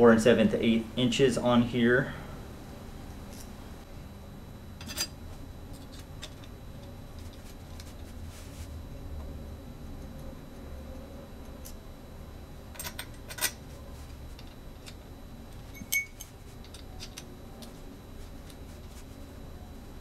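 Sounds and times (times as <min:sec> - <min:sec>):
metallic tap with ring: 0:15.8 - 0:16.3.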